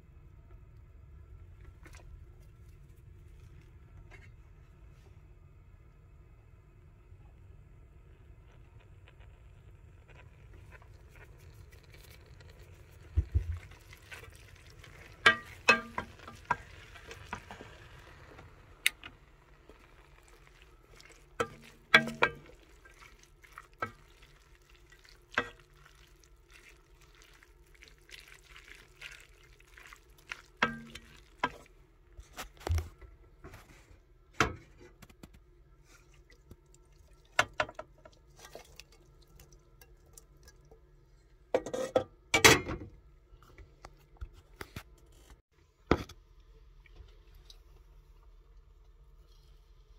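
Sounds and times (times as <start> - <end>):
low steady hum: 0.0 - 49.9
wooden spoon stirring pasta in pot: 10.5 - 32.6
spoon knocking metal pot: 15.2 - 16.6, 21.4 - 22.5.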